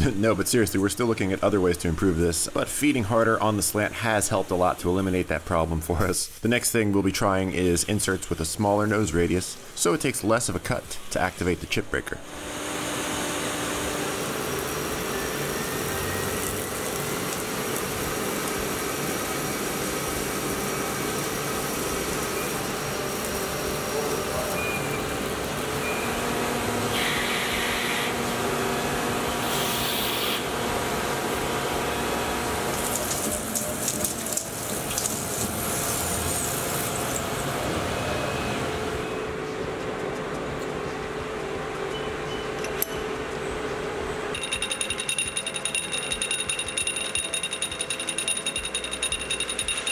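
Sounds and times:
coolant spraying: 12.8s - 26.0s, 32.6s - 37.5s
machine clicks: 44.4s - 49.9s.

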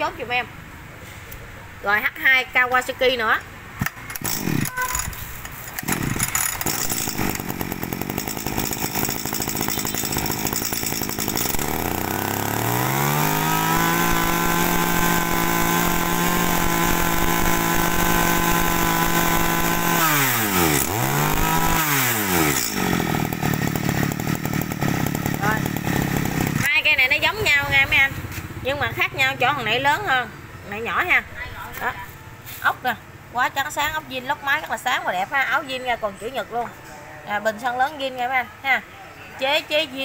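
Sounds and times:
brush cutter engine revving: 3.8s - 26.9s.

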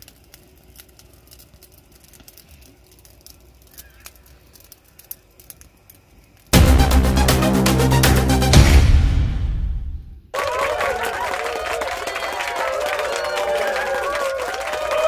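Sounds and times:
small clicks and crackles: 0.0s - 6.6s
loud music: 6.6s - 10.1s.

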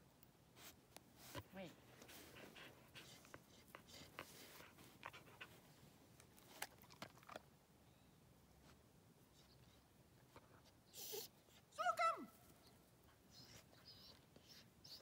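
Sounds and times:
dog panting: 1.2s - 5.8s.

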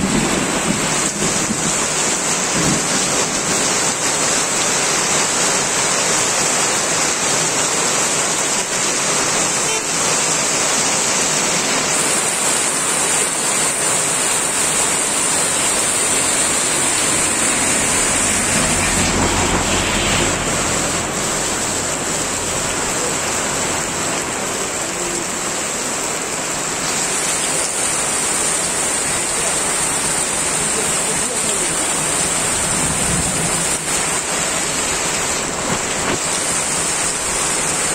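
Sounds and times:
heavy rain on road: 0.0s - 37.9s
bus driving past: 15.7s - 24.4s.

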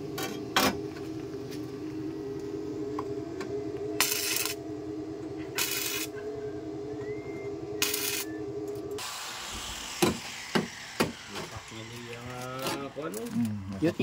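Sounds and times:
machine hum: 0.0s - 14.0s
welding crackling: 4.0s - 4.6s, 5.6s - 6.1s, 7.8s - 14.0s.

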